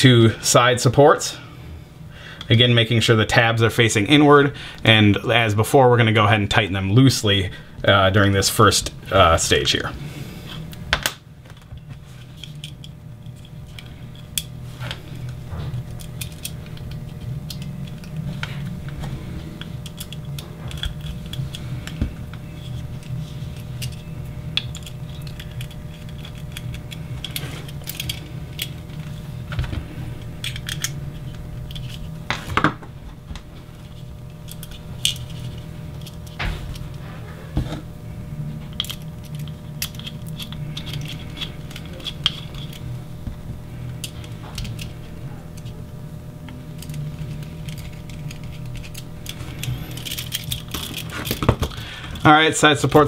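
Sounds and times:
steady low hum: 0.0 - 53.0
small metal parts clicking: 15.9 - 19.0, 19.8 - 22.0, 22.6 - 29.1, 30.4 - 32.0, 34.4 - 36.9, 38.7 - 42.9, 44.0 - 45.8, 46.8 - 53.0.

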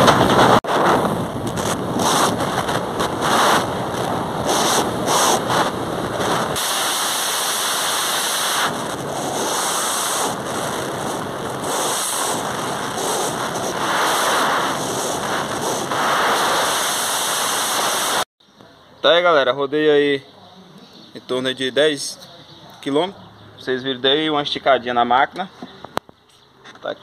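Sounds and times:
wind buffeting microphone: 0.0 - 6.6.

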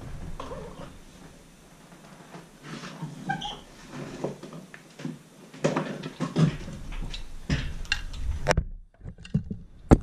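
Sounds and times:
short squeak: 3.2 - 3.7.

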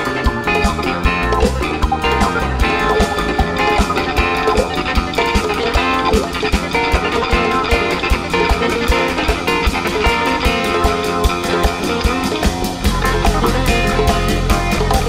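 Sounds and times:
bass guitar: 0.0 - 15.0
drum kit with cymbal beat: 0.0 - 15.0
electric guitar: 0.0 - 15.0
keyboards: 0.0 - 15.0.

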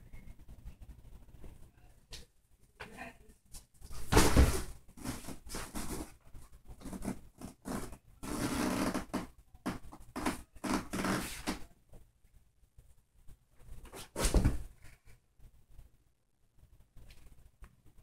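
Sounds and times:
rustling and shuffling: 0.0 - 8.4, 9.0 - 18.0.

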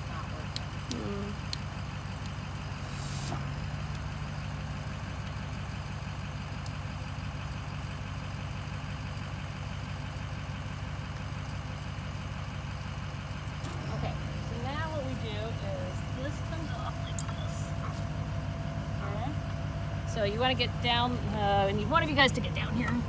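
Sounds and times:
brief hiss: 2.8 - 3.4.

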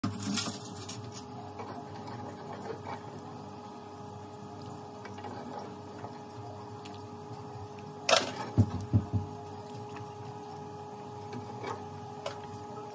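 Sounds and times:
steady hum: 0.0 - 12.9.

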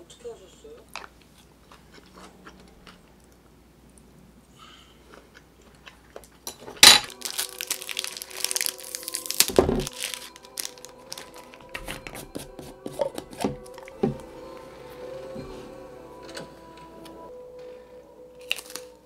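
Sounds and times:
plastic wrapper tearing and crinkling: 6.8 - 12.5, 18.4 - 19.0.

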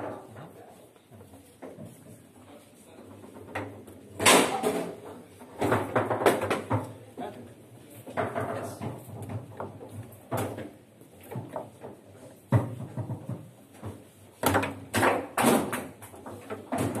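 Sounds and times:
foosball knocks and clacks: 3.1 - 7.0, 8.0 - 17.0.

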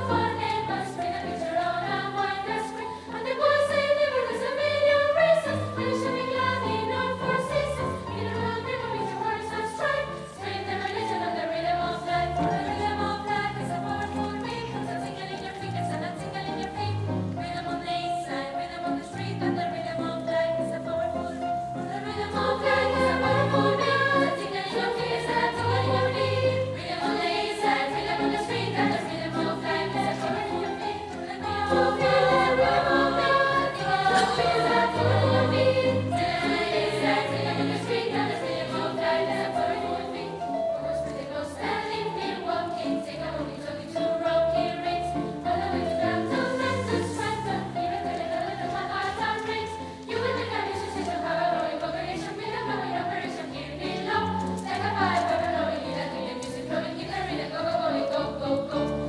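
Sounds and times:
children's choir singing: 0.0 - 59.0.

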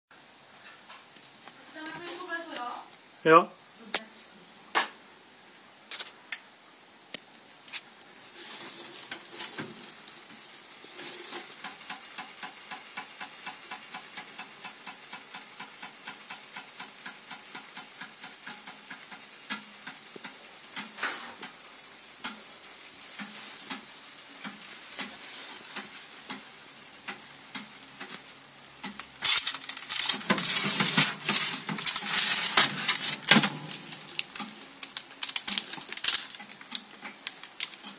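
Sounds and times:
pastry sizzling in an oven: 0.4 - 37.9
tray rustling and scraping: 7.7 - 11.6, 28.8 - 37.9.

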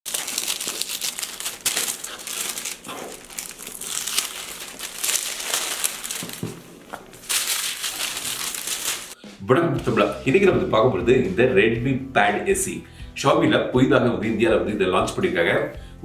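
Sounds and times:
paper rustling and crinkling: 0.1 - 9.2.

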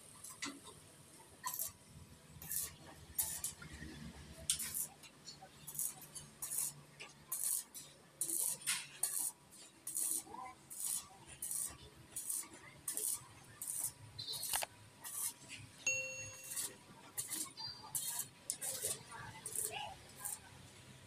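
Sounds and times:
welding arc crackling: 1.4 - 1.8, 2.4 - 3.8, 4.4 - 15.4, 16.4 - 20.7
metallic ringing ding: 15.9 - 16.7.

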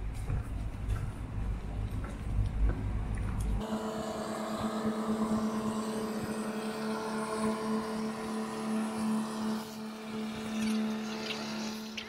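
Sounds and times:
tugboat diesel engine droning: 3.6 - 12.0.

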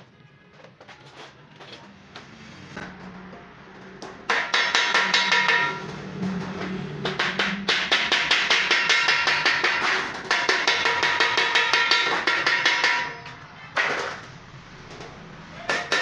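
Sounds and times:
mallet hammering steel sheet: 4.2 - 14.2, 15.6 - 16.0.

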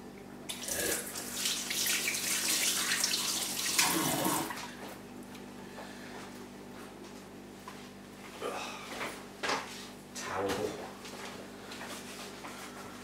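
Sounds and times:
kitchen tap running: 0.5 - 4.6.

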